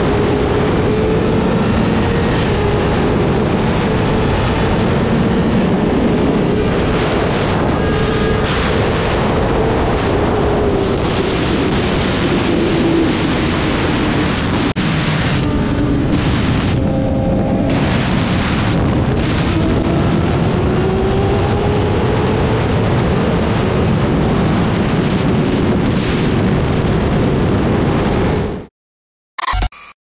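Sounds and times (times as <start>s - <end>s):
motorcycle engine revving: 0.0s - 23.2s
wind buffeting microphone: 0.0s - 28.7s.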